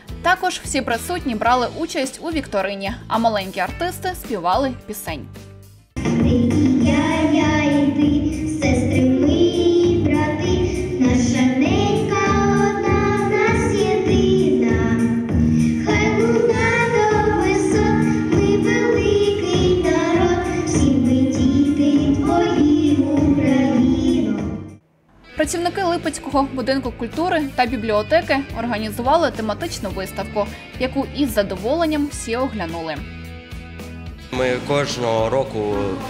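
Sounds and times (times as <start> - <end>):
instrumental backing music: 0.0 - 36.0
girls singing into microphones: 6.1 - 24.7.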